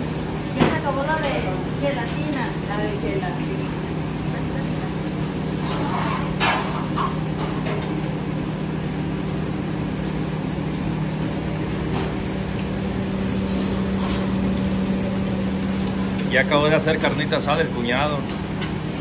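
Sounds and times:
kitchen equipment hum and hiss: 0:00.0 - 0:19.0
cooking utensil clatter: 0:05.5 - 0:08.0.

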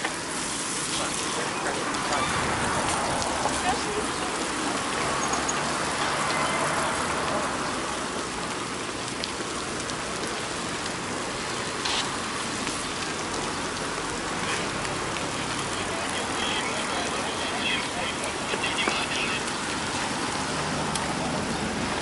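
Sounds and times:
bicycle tyres on wet asphalt: 0:00.0 - 0:22.0
rain hissing: 0:00.0 - 0:22.0.

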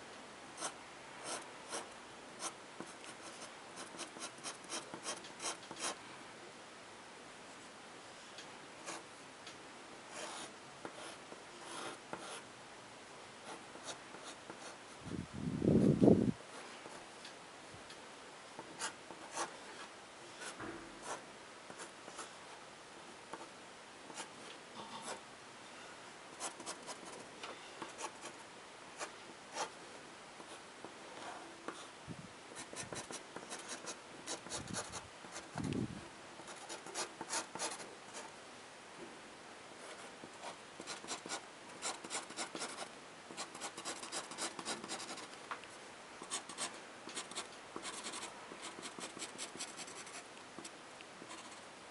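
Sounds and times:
pen scratching on paper: 0:02.4 - 0:06.0, 0:10.1 - 0:12.4, 0:40.8 - 0:45.3, 0:46.2 - 0:50.2, 0:51.2 - 0:51.6.

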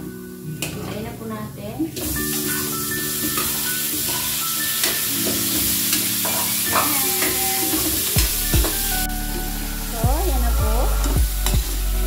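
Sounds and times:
shrimp sizzling in a wok: 0:01.9 - 0:12.0
metal spoon clinking on pan: 0:03.2 - 0:07.9.

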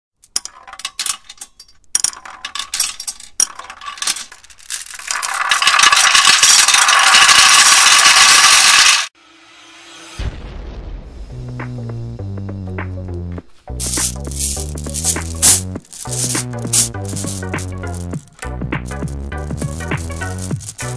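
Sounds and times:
glass marbles clicking: 0:00.2 - 0:09.1, 0:13.8 - 0:20.9
marbles clattering into metal pipe: 0:00.2 - 0:09.1, 0:13.8 - 0:20.9.

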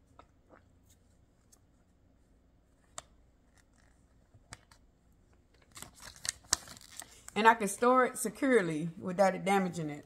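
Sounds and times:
paper crinkling: 0:05.6 - 0:07.3.

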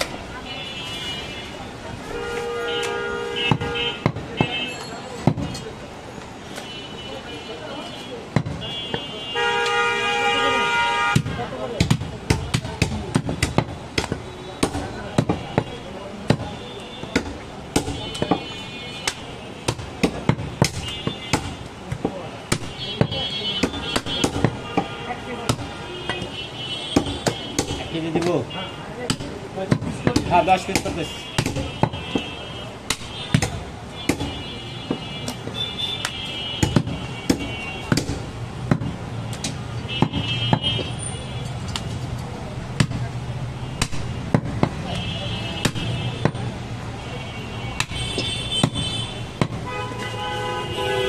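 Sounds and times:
cleaver chopping meat on wood: 0:03.5 - 0:04.6, 0:05.2 - 0:05.6, 0:08.3 - 0:08.6, 0:11.1 - 0:26.3, 0:26.9 - 0:28.4, 0:29.0 - 0:40.9, 0:42.8 - 0:43.1, 0:43.8 - 0:44.9, 0:45.6 - 0:46.5, 0:47.8 - 0:49.7.

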